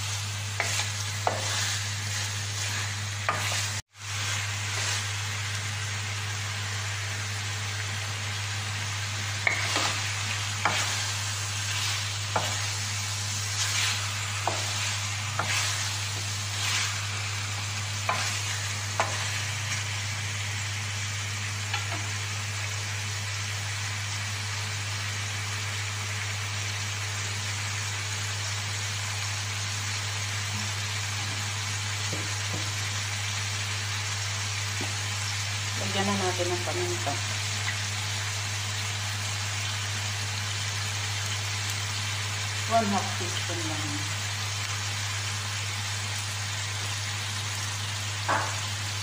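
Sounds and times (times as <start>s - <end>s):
chicken sizzling in a wok: 0.0s - 49.0s
spatula scraping against pan: 0.6s - 5.1s, 9.4s - 17.1s, 18.0s - 19.6s.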